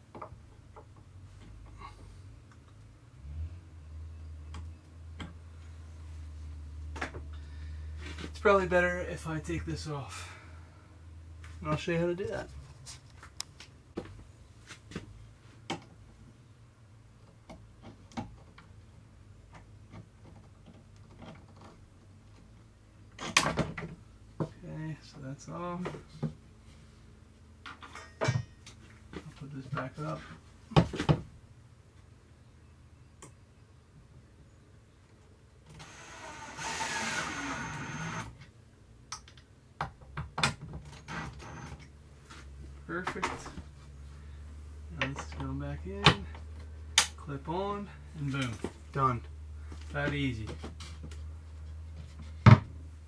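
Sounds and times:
drill driving screw into wood: 0:35.7 - 0:38.4, 0:41.0 - 0:41.8.

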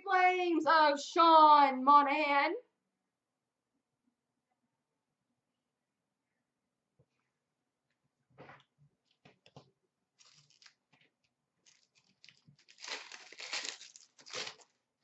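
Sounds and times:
plastic wrapper ripping open: 0:10.2 - 0:11.0, 0:11.6 - 0:14.8
plastic wrapper crinkling: 0:10.2 - 0:14.8.

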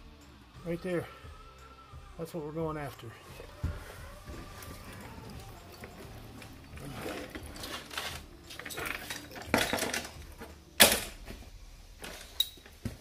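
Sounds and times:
metal tools clinking: 0:05.8 - 0:11.2, 0:12.0 - 0:12.7.

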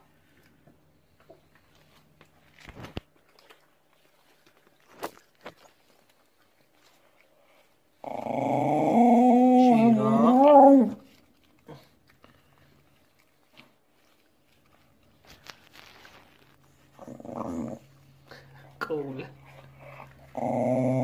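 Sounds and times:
faint clicks of eating: 0:00.1 - 0:08.0, 0:10.9 - 0:17.2
dog growling: 0:08.0 - 0:12.0, 0:16.9 - 0:17.9, 0:19.6 - 0:21.0.

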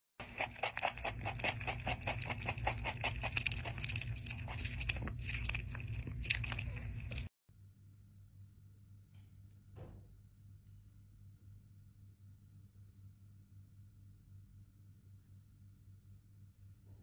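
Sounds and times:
cat chewing crunchy food: 0:00.2 - 0:07.3.

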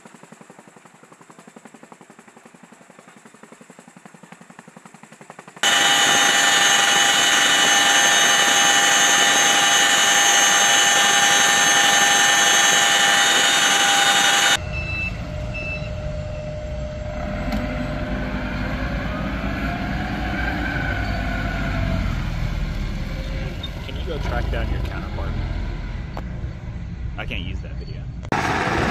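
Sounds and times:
helicopter cabin noise: 0:05.3 - 0:19.9
forklift engine rumbling: 0:14.3 - 0:28.9.

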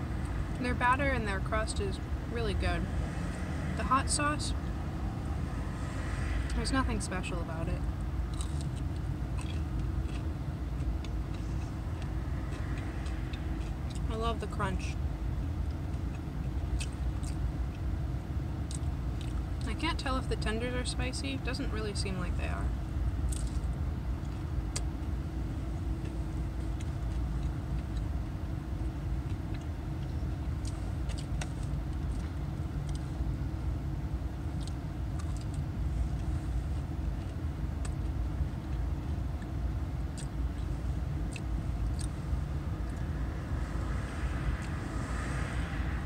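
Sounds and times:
low hum of car: 0:00.0 - 0:46.0
crunchy biting and chewing: 0:08.2 - 0:14.1, 0:15.7 - 0:17.9, 0:23.2 - 0:25.0, 0:29.1 - 0:33.3, 0:39.3 - 0:45.9.

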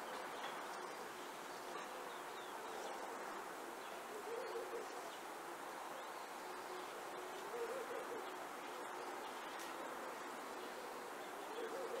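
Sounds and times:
low wavering hooting bird call: 0:07.5 - 0:08.4.

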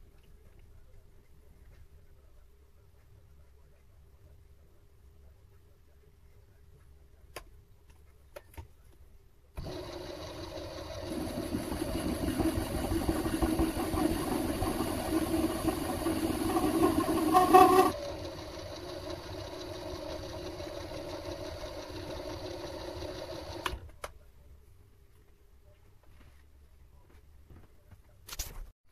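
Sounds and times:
lathe tool cutting metal: 0:09.6 - 0:23.6
metal lathe running: 0:09.6 - 0:23.8.

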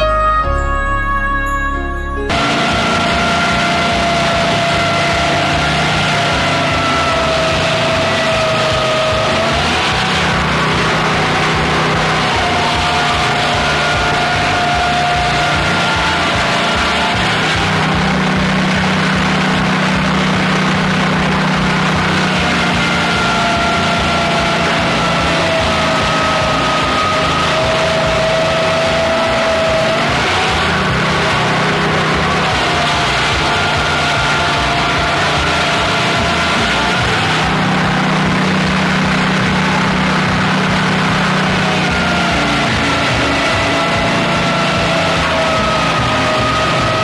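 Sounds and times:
sawmill low machine hum: 0:02.3 - 0:47.0.

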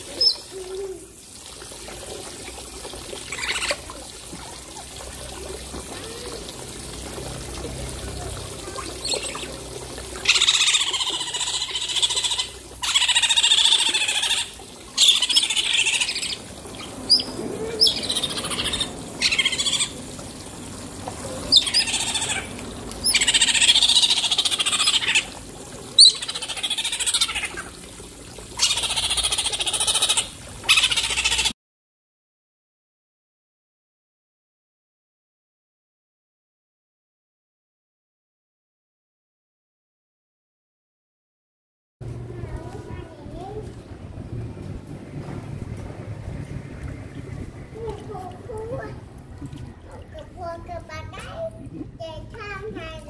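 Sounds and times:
otters chirping and squealing: 0:00.0 - 0:00.7, 0:03.3 - 0:04.0, 0:08.6 - 0:09.6, 0:10.2 - 0:20.0, 0:21.2 - 0:27.8, 0:28.5 - 0:31.5
water splashing: 0:00.0 - 0:31.5, 0:42.0 - 0:53.0.

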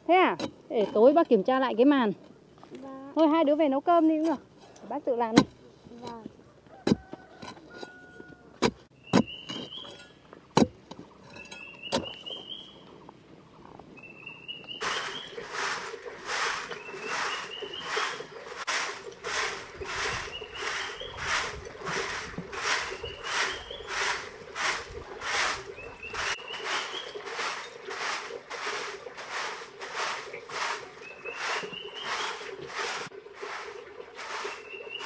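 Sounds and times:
broom sweeping dirt ground: 0:14.8 - 0:35.0.

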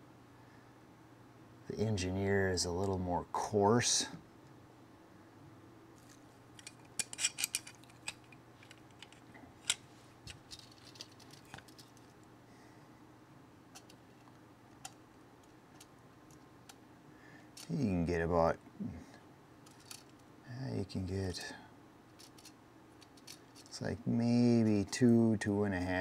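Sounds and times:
pliers clicking: 0:06.6 - 0:11.6.

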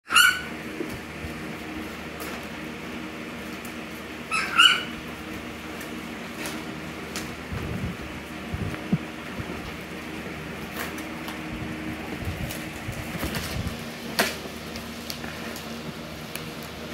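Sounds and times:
puppy yipping: 0:00.1 - 0:00.5, 0:04.3 - 0:04.9.

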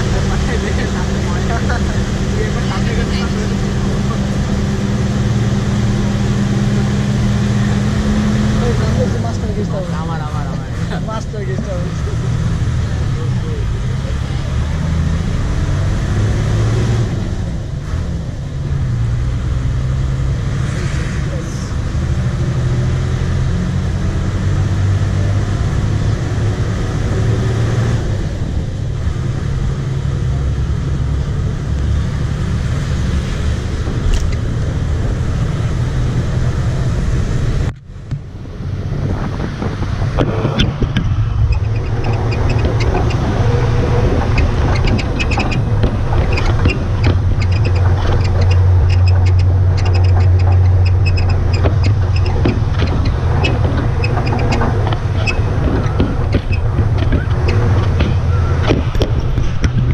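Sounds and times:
road and wind noise: 0:00.0 - 0:59.9
vehicle engine droning: 0:00.0 - 0:59.9
rattling: 0:39.2 - 0:59.9.

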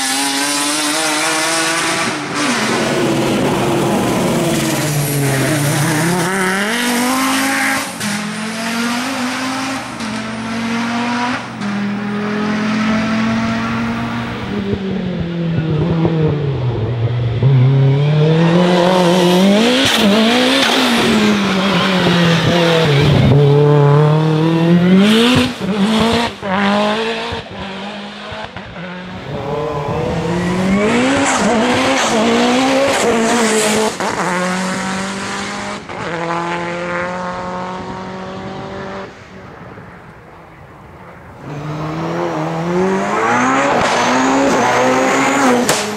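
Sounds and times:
race car engines accelerating: 0:00.0 - 0:45.9.

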